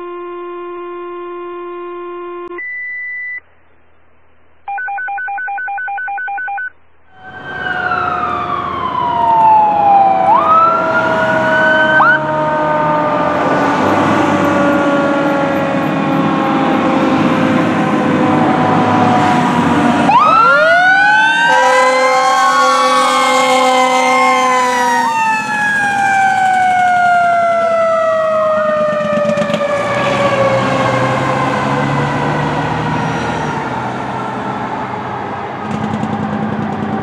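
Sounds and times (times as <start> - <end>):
electronic alert tones: 0.0 - 3.5
fire engine sirens: 7.1 - 37.0.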